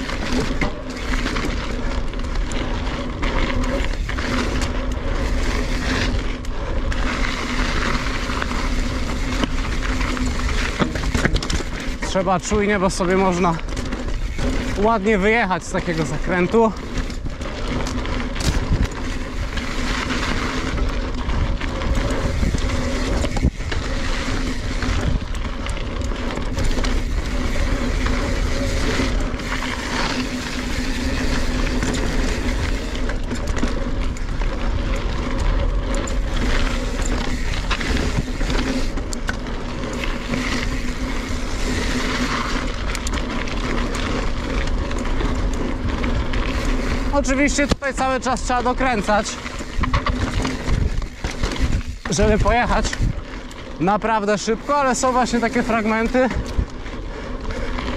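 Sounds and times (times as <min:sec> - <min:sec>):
bike rattling: 0:00.0 - 0:57.9
bike tyres crunching on gravel: 0:00.0 - 0:57.9
bike knocking on rocks: 0:07.9 - 0:12.6
wind on microphone: 0:20.6 - 0:25.4.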